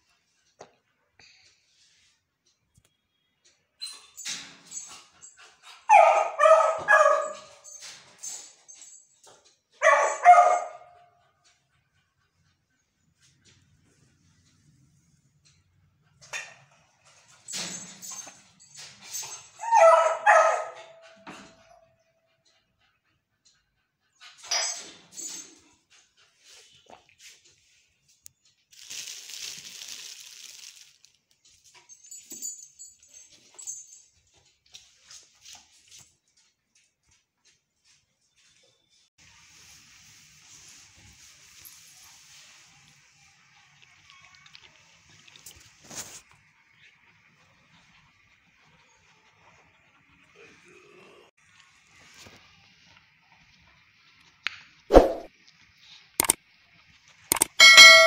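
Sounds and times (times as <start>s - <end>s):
puppy barking: 5.9s - 7.6s, 9.8s - 11.2s, 19.6s - 21.2s
plastic wrapping crinkling: 28.7s - 31.3s.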